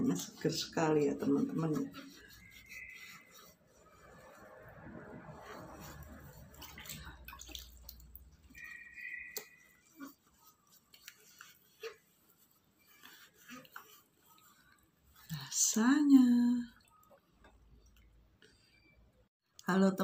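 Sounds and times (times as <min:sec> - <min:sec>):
towel rubbing a wet face: 0:00.0 - 0:15.8.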